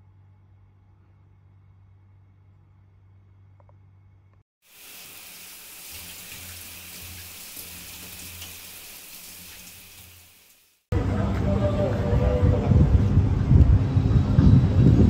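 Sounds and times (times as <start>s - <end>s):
shower water spraying: 4.6s - 10.9s.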